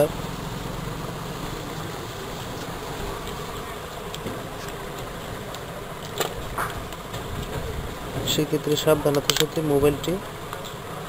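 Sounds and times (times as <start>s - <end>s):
low buzzing hum: 0.0s - 11.0s.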